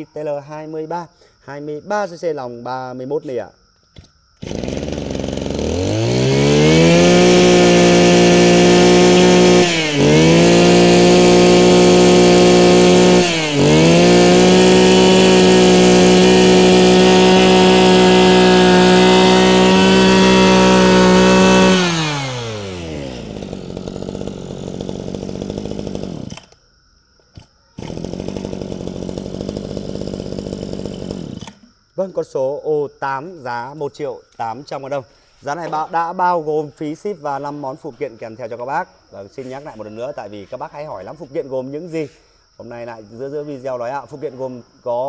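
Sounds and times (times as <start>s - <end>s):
brush cutter engine revving: 4.4s - 26.6s, 27.3s - 31.7s.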